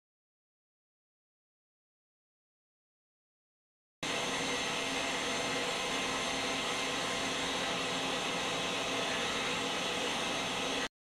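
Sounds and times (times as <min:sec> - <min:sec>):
lathe whirring hiss: 0:04.0 - 0:10.9.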